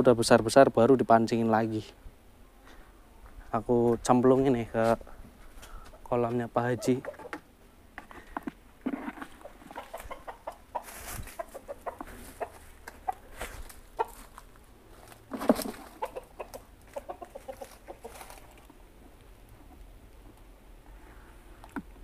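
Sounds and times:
chickens clucking: 5.6 - 19.8.

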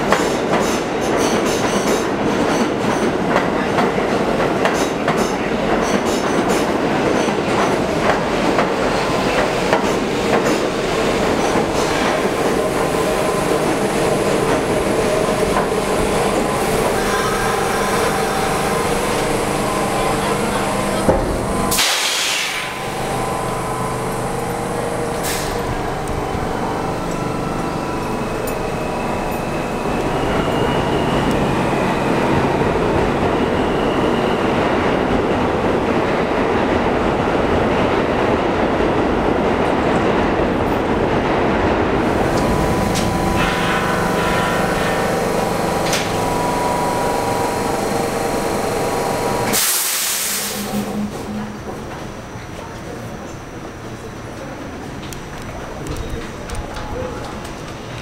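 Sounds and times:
subway train equipment humming: 0.0 - 58.0
rushing noise: 10.8 - 34.5, 41.9 - 52.4.

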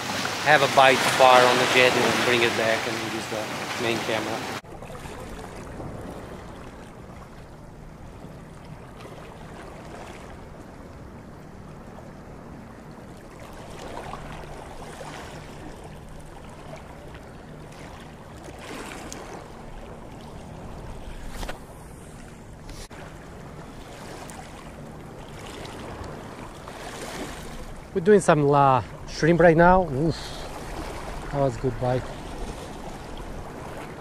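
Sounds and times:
waves washing against rocks: 0.0 - 4.6
wind: 0.0 - 34.0.

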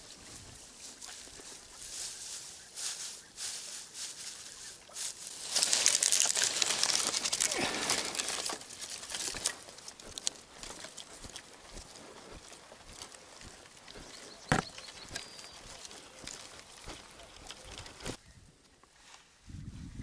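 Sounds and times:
close crinkling and rustling: 2.9 - 12.1.

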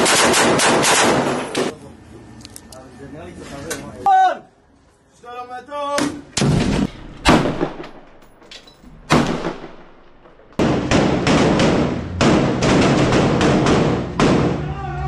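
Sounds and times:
rapid gunfire: 0.0 - 1.7, 10.6 - 14.6.

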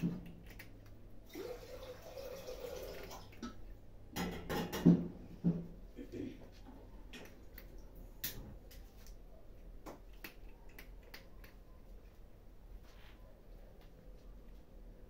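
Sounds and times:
cats chewing food: 0.0 - 1.6, 2.6 - 4.1, 6.5 - 15.0.

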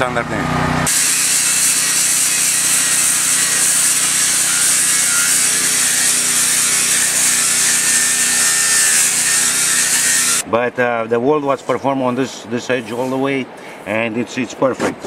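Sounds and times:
angle grinder sanding steel: 0.9 - 10.4.

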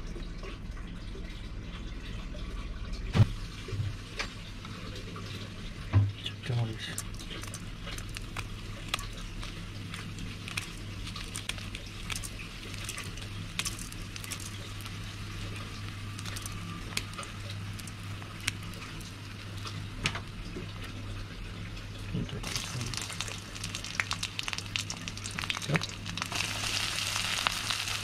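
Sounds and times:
hot oil sizzling: 3.2 - 28.0
chilli crackling and popping: 6.5 - 21.4, 22.4 - 28.0.

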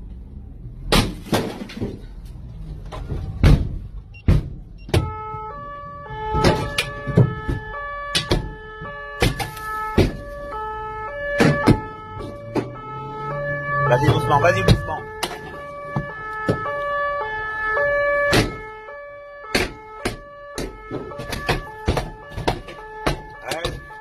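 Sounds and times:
sharp knocks and bangs: 0.9 - 2.2, 3.0 - 5.5, 6.2 - 10.6, 11.2 - 12.9, 14.0 - 17.0, 18.2 - 24.0
two-tone siren: 4.1 - 24.0.

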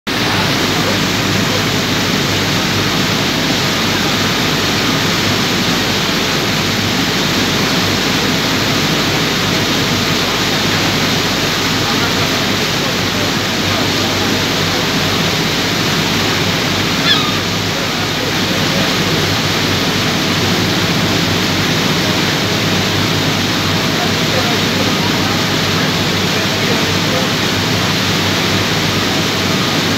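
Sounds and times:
boat wake churning: 0.0 - 29.9
faint engine hum: 0.1 - 29.9
gull call: 16.9 - 18.0.

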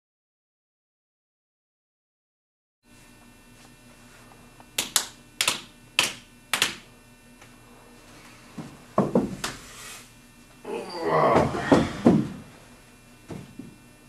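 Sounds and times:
finger snapping: 4.8 - 6.8.

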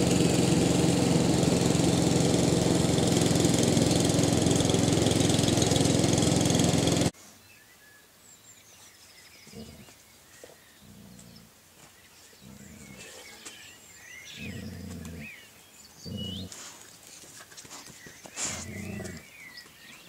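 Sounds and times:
dogs growling in play: 10.8 - 11.5, 12.4 - 13.2, 14.3 - 15.4, 16.0 - 16.6, 18.5 - 19.3.

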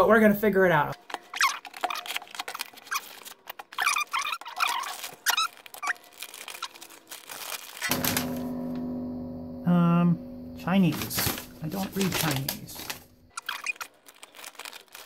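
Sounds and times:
paper packaging rustling: 0.8 - 8.5, 10.8 - 15.0
steady low hum: 7.9 - 13.3.

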